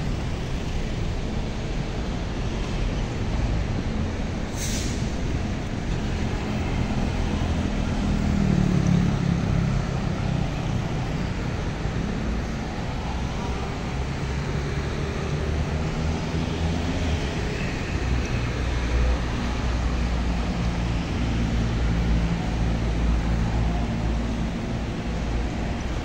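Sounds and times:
low traffic rumble: 0.0s - 26.0s
motorcycle and car engines passing: 5.9s - 12.4s.

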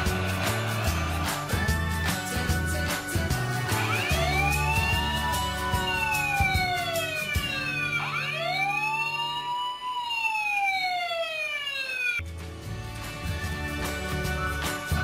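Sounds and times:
background music: 0.0s - 9.9s, 12.2s - 15.0s
toy fire truck siren wailing: 3.7s - 12.2s.

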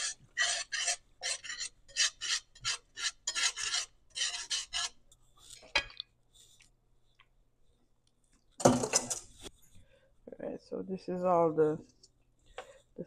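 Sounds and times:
whisk scraping a steel skillet: 0.0s - 5.6s.

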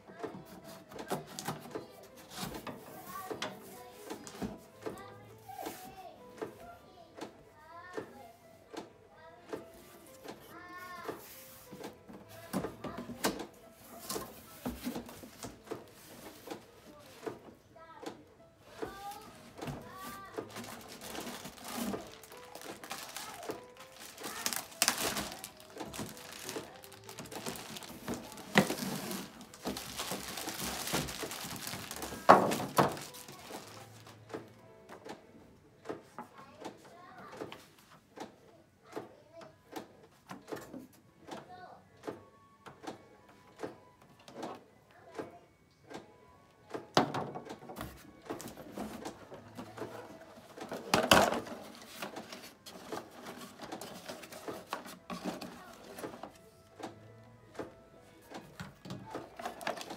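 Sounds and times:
cardboard crackling: 18.7s - 34.2s, 47.8s - 56.4s
cardboard scraping: 18.9s - 34.0s
plastic bags crinkling: 19.0s - 34.2s, 50.0s - 56.3s, 59.1s - 59.9s
box and parts knocking: 19.6s - 33.8s.

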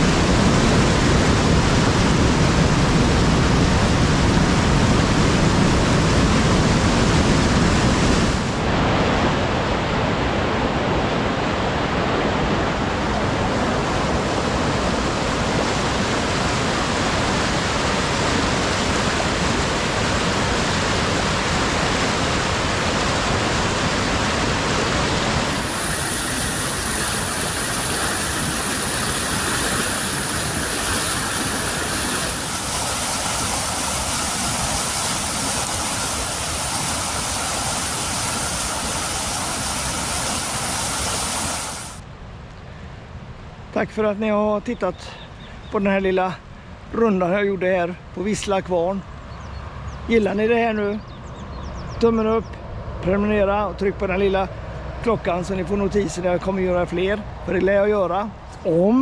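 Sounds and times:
river rushing over rapids: 0.0s - 42.1s.

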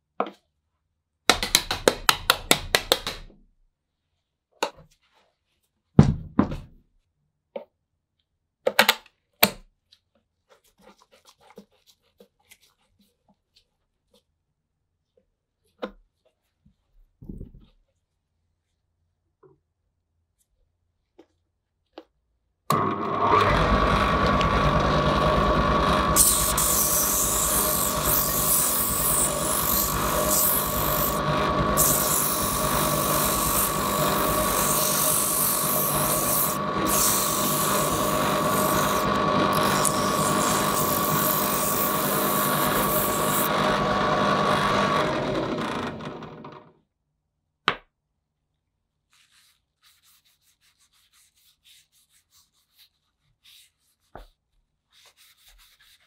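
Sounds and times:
drill press motor whine and hum: 22.7s - 46.7s
sandpaper hissing on turning wood: 26.1s - 43.5s.

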